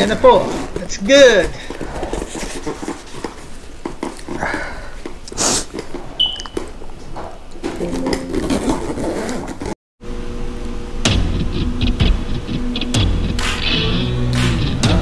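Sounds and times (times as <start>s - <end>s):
bag rustling and scraping: 0.0s - 4.4s, 8.2s - 9.8s.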